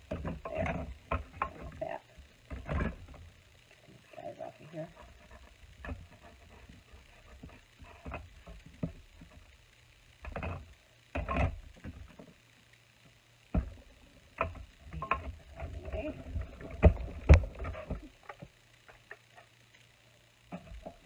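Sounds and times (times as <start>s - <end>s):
acrylic plates knocking and scraping: 0.0s - 1.8s, 10.2s - 12.3s.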